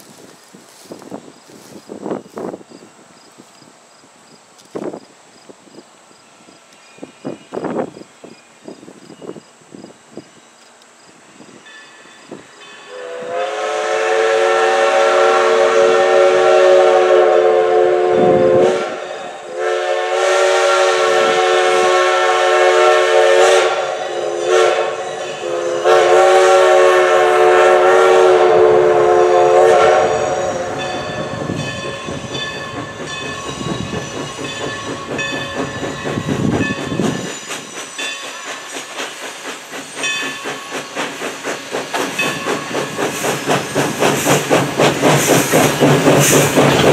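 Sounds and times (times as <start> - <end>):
locomotive exhaust beats and hiss: 0.0 - 46.9
steam locomotive chime whistle: 11.1 - 44.5.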